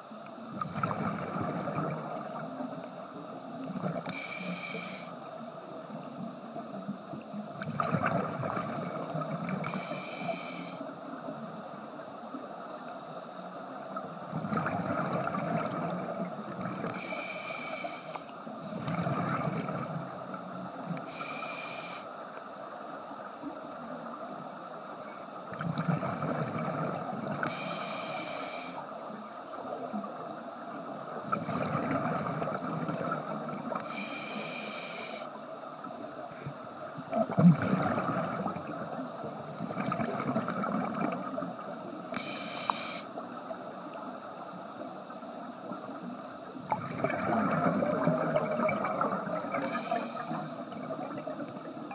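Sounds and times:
exhaled air bubbling: 0.5s - 2.8s, 7.5s - 9.8s, 14.3s - 17.0s, 18.6s - 21.1s, 25.5s - 27.6s, 31.2s - 33.8s, 36.9s - 42.3s, 46.6s - 51.9s
regulator hiss on inhalation: 4.0s - 6.0s, 9.0s - 10.9s, 16.8s - 18.3s, 21.0s - 22.8s, 27.4s - 28.9s, 33.8s - 35.4s, 42.1s - 43.2s, 49.6s - 50.8s.

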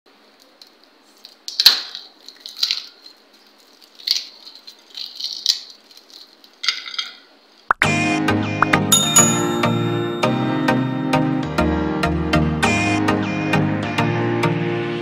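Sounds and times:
crispy wafer cracking: 0.3s - 6.7s
crumbs falling: 0.4s - 7.0s.

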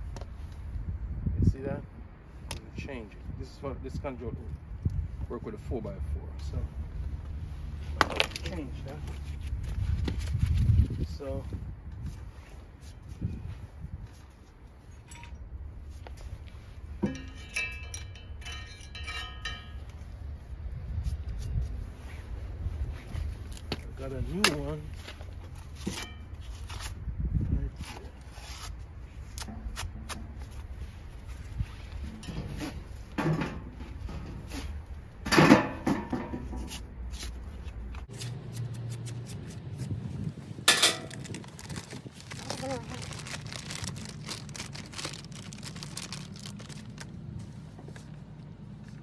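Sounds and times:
metal tool clinking and scraping: 14.9s - 15.5s, 17.0s - 20.1s, 25.8s - 26.4s, 32.0s - 34.6s, 40.7s - 41.4s
low rumble: 39.6s - 47.5s.

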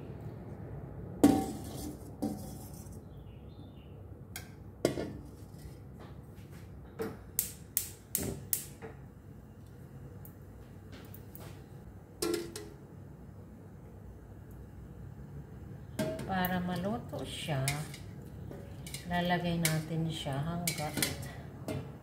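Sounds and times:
metal tongs clinking on steel: 20.6s - 21.3s.

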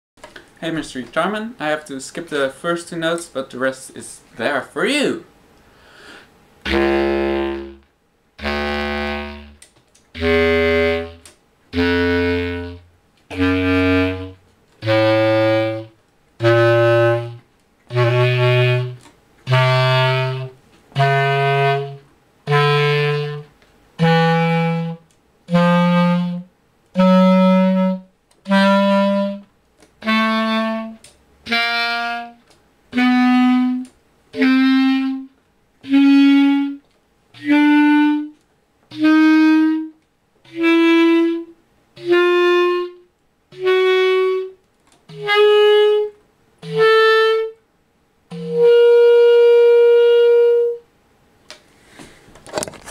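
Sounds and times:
bass clarinet playing a scale: 6.6s - 36.8s, 37.4s - 47.6s, 48.3s - 50.9s.

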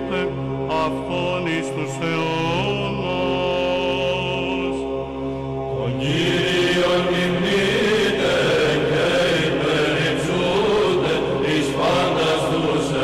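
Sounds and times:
voices chanting a melody: 5.8s - 13.0s.

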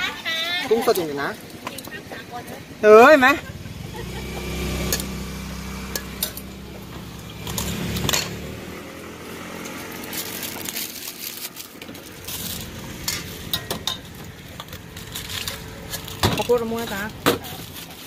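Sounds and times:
metal spoon clinking in steel bowl: 5.9s - 6.5s.

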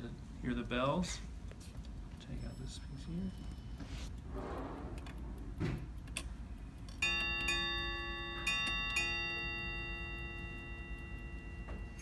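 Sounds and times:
ship's bell clock striking: 7.0s - 12.0s.

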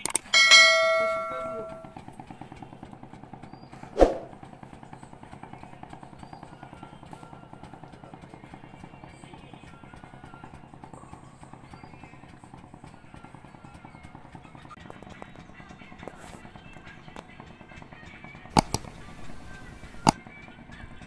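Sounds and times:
bright bell-like chime: 0.3s - 1.9s.

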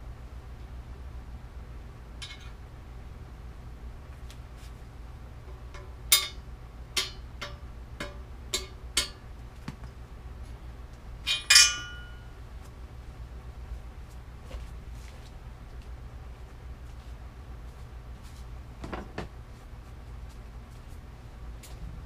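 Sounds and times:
loud ringing metal clang: 5.7s - 6.4s, 11.2s - 12.3s.

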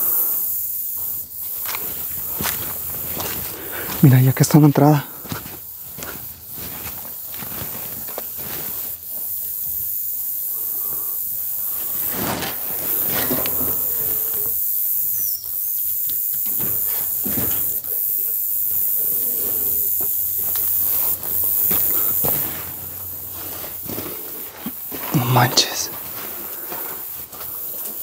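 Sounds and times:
footsteps crunching dry leaves: 1.0s - 9.6s, 20.4s - 28.0s.

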